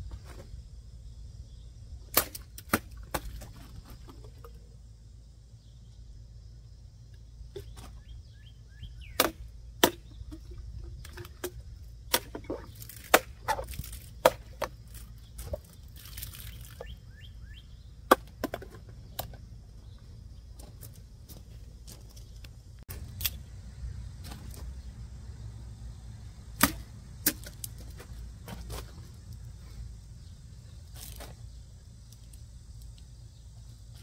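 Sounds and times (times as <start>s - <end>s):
sharp snaps and knocks: 2.1s - 4.5s.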